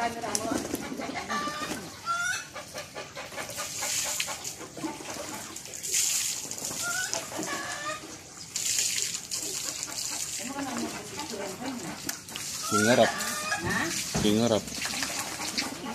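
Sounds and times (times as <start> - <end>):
pigeons splashing in water: 0.0 - 15.9
fowl clucking: 0.4 - 5.6, 6.8 - 8.2, 12.6 - 14.0.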